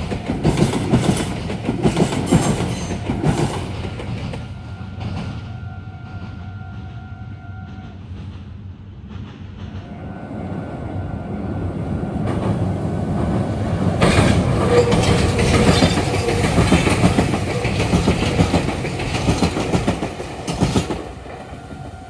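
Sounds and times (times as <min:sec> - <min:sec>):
train wheels clattering over rails: 0:00.0 - 0:07.0, 0:12.1 - 0:22.0.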